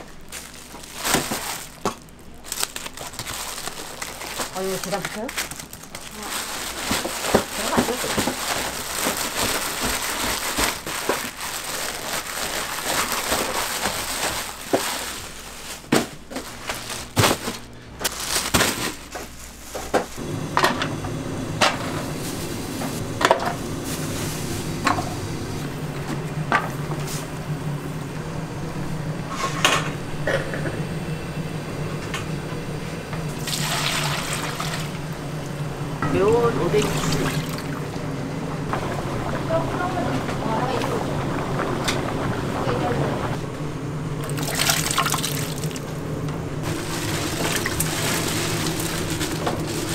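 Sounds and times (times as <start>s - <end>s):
plastic bag crinkling: 0.0s - 19.8s, 46.6s - 49.9s.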